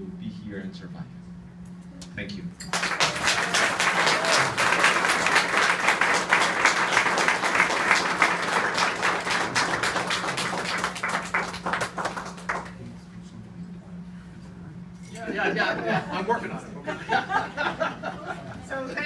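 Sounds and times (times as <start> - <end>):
audience applauding: 2.7 - 12.8.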